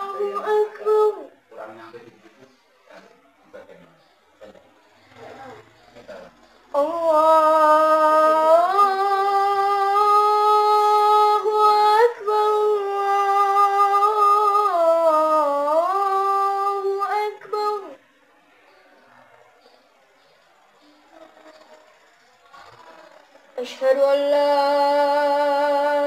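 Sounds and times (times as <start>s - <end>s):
boy chanting call to prayer: 0.0s - 1.9s, 5.1s - 18.0s, 23.6s - 26.0s.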